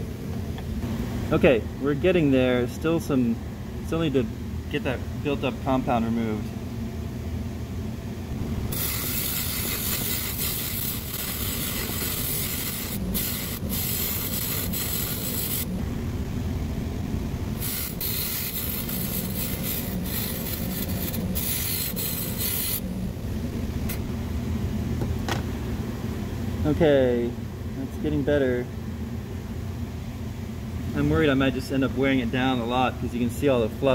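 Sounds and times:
bench buffer motor hum: 0.0s - 33.9s
scratchy rasping hiss: 8.7s - 15.7s, 17.6s - 22.9s.

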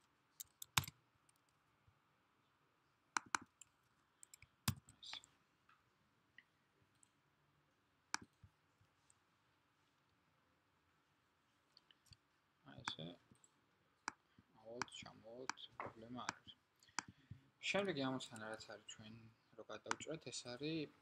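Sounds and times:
computer mouse clicks: 0.4s - 1.5s, 3.2s - 5.3s.

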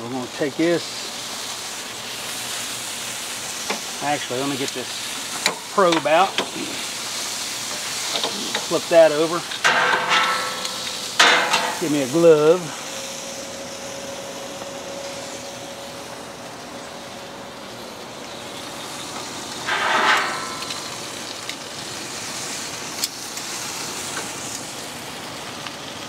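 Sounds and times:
chicken sizzling on a grill: 0.0s - 26.0s
tongs clicking on metal grate: 19.7s - 21.6s.

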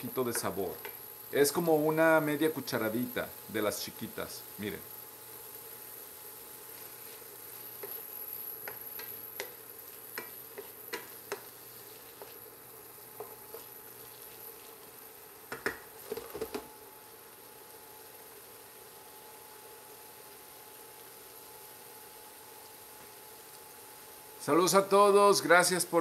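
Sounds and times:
vegetables sizzling in a pan: 0.0s - 26.0s
wooden spoon tapping a pan: 8.6s - 11.5s, 13.1s - 13.7s, 15.5s - 16.7s.

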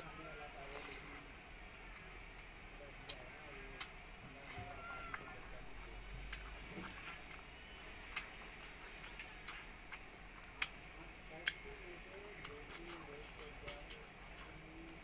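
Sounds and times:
wet chewing mouth clicks: 6.2s - 15.0s
lip smacks: 8.1s - 11.7s.

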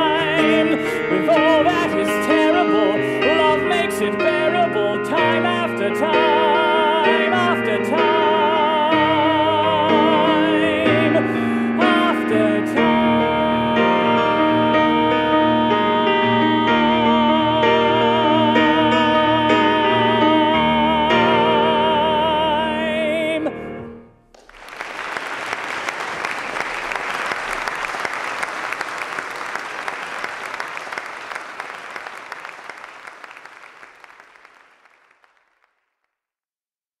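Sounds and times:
man singing with vibrato: 0.0s - 24.1s
musical accompaniment: 0.0s - 35.4s
audience applause: 24.3s - 36.0s.

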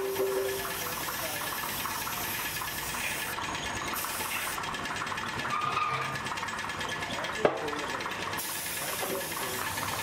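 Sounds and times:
paint spray gun hissing: 0.0s - 4.6s, 8.4s - 10.0s
mechanical drone: 0.0s - 10.0s.

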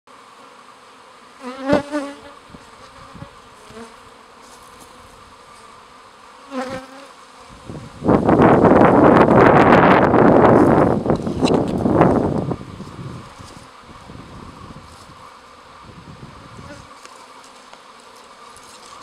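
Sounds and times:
honeybees buzzing: 0.1s - 19.0s
bee flying past microphone: 0.2s - 19.0s
rushing noise on microphone: 7.5s - 17.0s.

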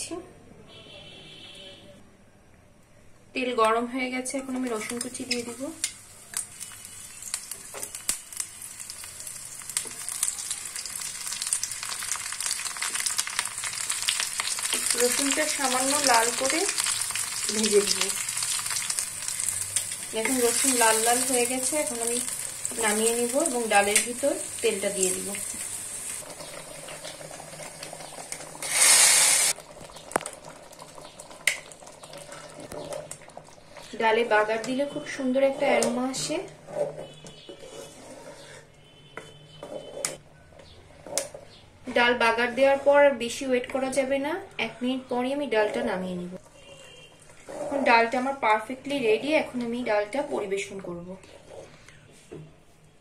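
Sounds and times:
garlic sizzling in oil: 4.6s - 36.3s.

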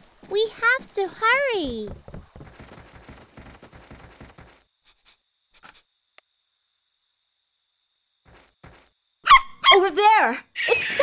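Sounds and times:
running footsteps on soft ground: 0.0s - 4.6s, 8.3s - 8.9s
crickets chirping: 0.0s - 11.0s.

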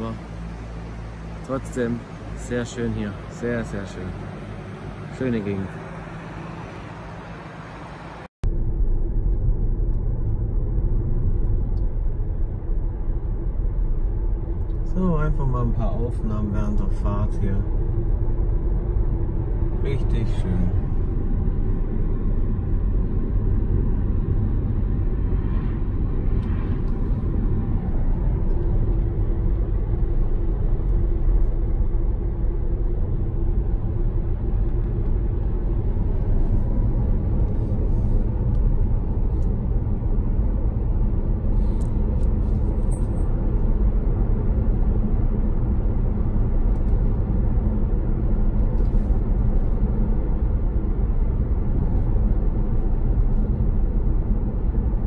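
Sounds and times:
road and tyre rumble in car cabin: 0.0s - 55.0s.

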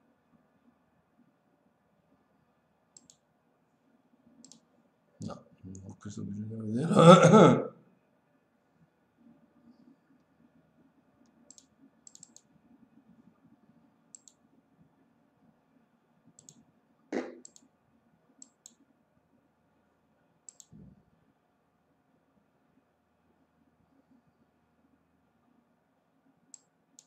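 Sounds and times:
faint clicks: 3.0s - 3.3s, 4.4s - 4.7s, 11.2s - 12.5s, 14.1s - 14.4s, 16.4s - 16.6s, 17.4s - 17.7s, 20.5s - 20.8s.

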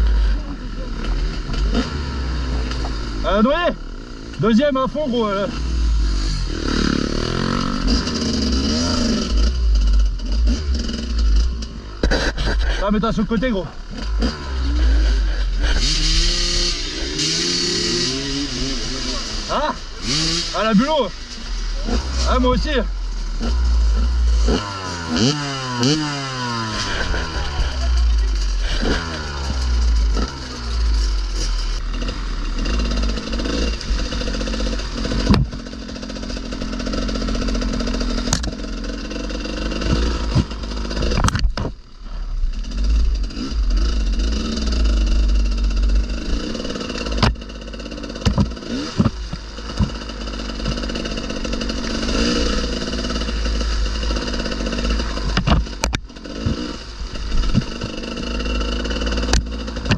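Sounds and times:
motorcycle engine revving: 0.0s - 59.9s
sharp knocks: 35.1s - 35.7s, 48.2s - 50.0s.

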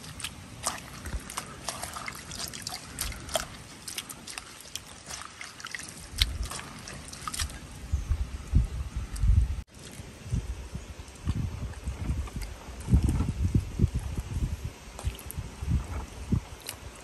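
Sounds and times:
water dripping: 0.0s - 7.8s
wet leaves squishing: 0.0s - 7.8s, 14.9s - 17.0s.

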